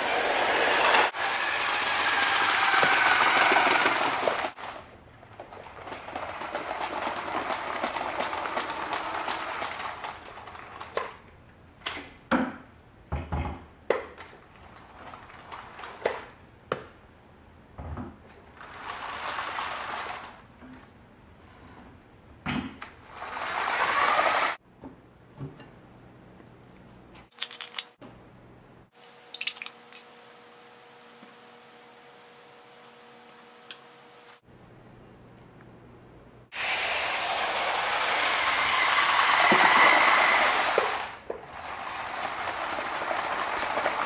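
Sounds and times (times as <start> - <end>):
toy train motor running: 0.2 - 4.5, 23.3 - 24.6, 36.6 - 44.0.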